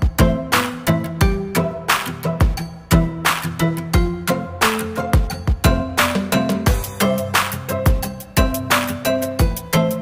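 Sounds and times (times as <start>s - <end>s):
steady drum beat: 0.0s - 3.3s
held instrumental notes: 0.0s - 10.0s.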